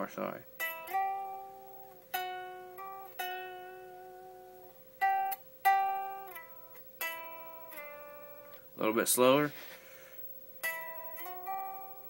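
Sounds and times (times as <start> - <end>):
unamplified electric guitar notes: 0.0 - 8.8, 9.6 - 12.0.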